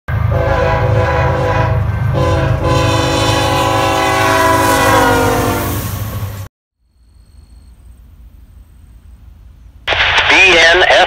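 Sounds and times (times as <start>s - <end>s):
train air horn blast: 0.3s - 5.9s.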